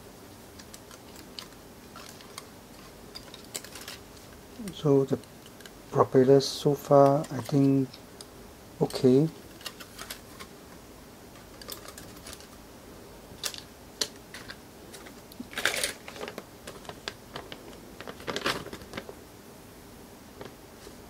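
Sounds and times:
plastic bag crinkling: 14.3 - 19.2.

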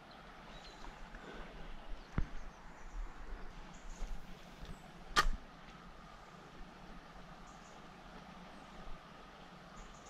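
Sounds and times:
riverside ambience: 0.0 - 10.0
sharp click: 5.1 - 5.4.

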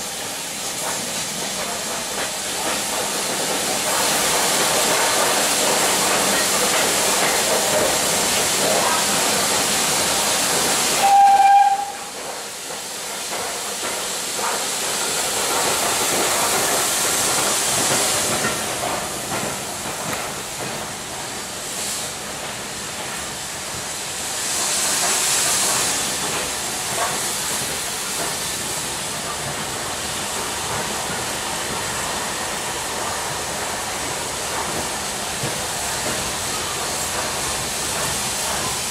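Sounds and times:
steam hiss: 0.0 - 38.9
train running noise: 0.0 - 38.9
steam train whistle: 11.0 - 12.2.

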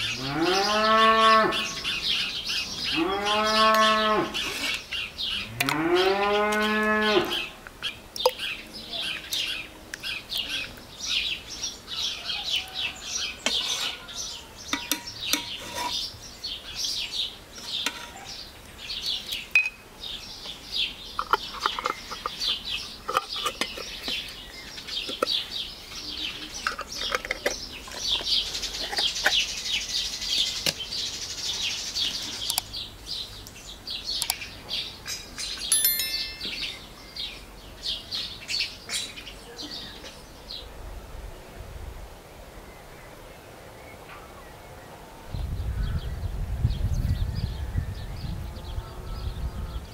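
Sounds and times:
small birds chirping: 0.0 - 40.7
cow mooing: 0.2 - 1.7, 2.9 - 4.4, 5.6 - 7.4.

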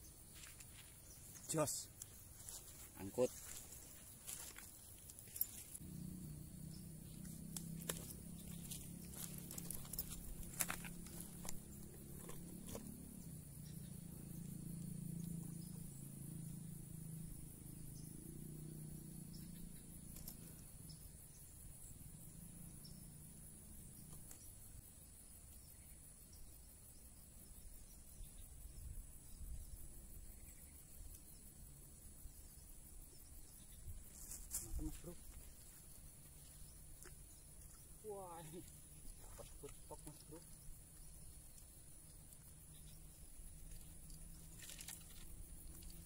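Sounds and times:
high-pitched insect chorus: 0.0 - 46.0.

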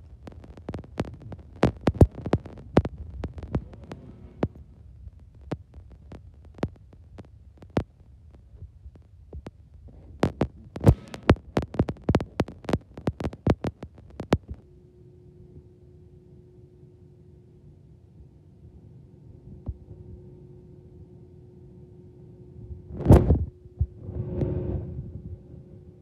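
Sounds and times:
low rumble: 0.0 - 14.8, 22.5 - 26.0
steady low hum: 0.0 - 26.0
sharp clicks and knocks: 0.2 - 4.7, 9.3 - 14.6.

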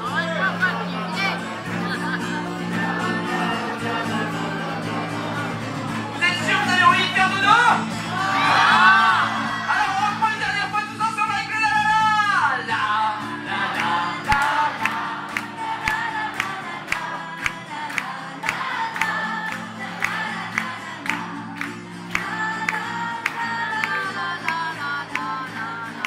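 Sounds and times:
acoustic guitar: 0.0 - 26.0
woman singing: 0.6 - 5.6, 13.2 - 26.0.

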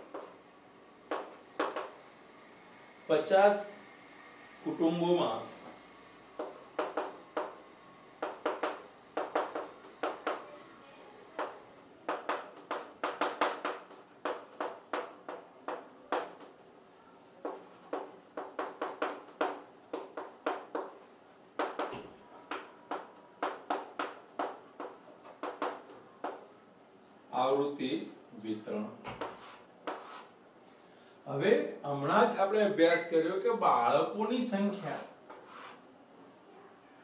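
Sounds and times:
chalk tapping and scratching: 8.2 - 10.4, 11.4 - 16.5, 29.2 - 30.4, 35.3 - 35.8.

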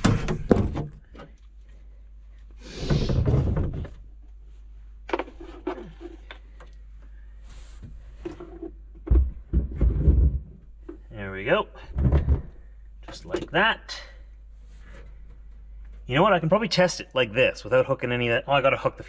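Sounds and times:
heavy thump: 11.8 - 12.6.

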